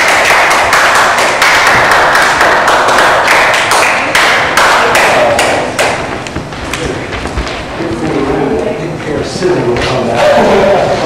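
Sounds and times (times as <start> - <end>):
people applauding: 0.0 - 6.0.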